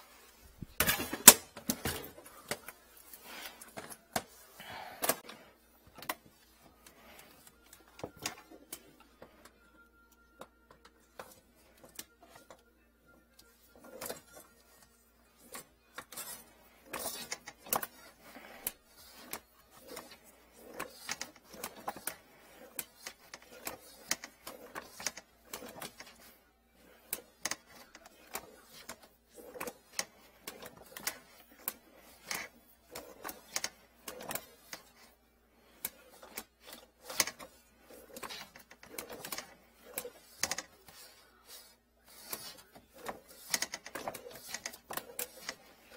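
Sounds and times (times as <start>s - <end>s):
cable reel clicking and rattling: 15.4s - 45.9s.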